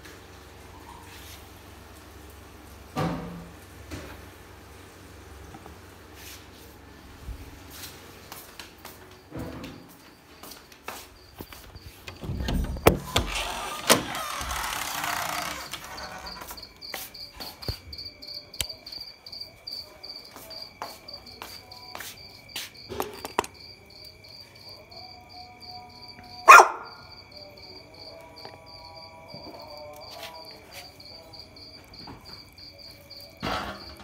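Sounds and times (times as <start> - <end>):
insects chirping: 7.0 - 34.0.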